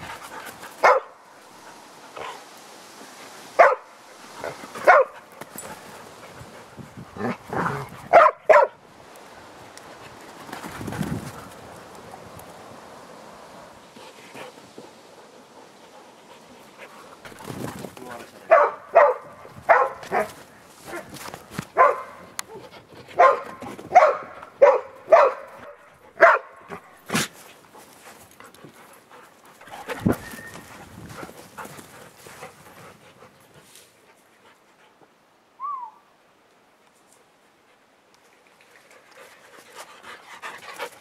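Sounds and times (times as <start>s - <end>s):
dogs barking: 0.8s - 1.2s, 3.6s - 5.2s, 7.6s - 8.8s, 18.5s - 21.1s, 21.8s - 22.3s, 23.2s - 26.8s.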